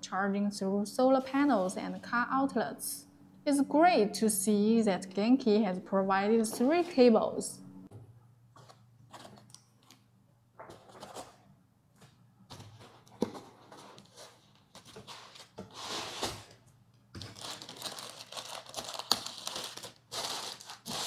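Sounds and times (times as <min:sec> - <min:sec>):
plastic bag crinkling: 0:17.2 - 0:21.0.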